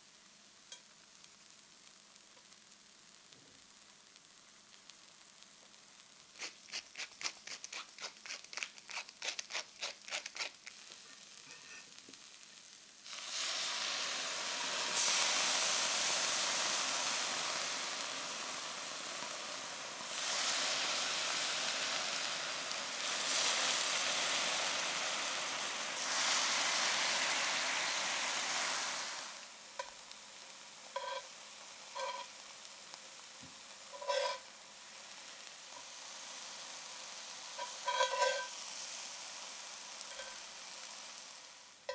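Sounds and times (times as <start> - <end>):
sauce sizzling in hot pan: 0.0 - 41.9
hand grinder grinding salt: 6.4 - 10.8
metal tongs clinking on pan: 31.0 - 31.3, 32.0 - 32.3, 33.9 - 34.4, 37.6 - 38.5, 40.1 - 40.4.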